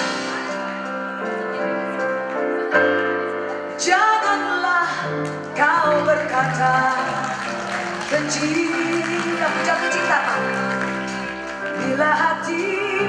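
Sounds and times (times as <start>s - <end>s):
pop band sustained chords: 0.0s - 13.0s
woman singing: 3.7s - 10.9s, 11.6s - 13.0s.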